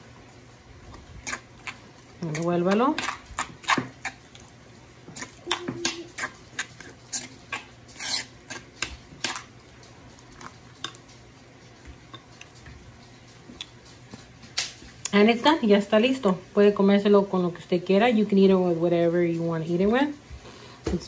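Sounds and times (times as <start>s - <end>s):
metal spoon scraping stone bowl: 8.0s - 8.6s.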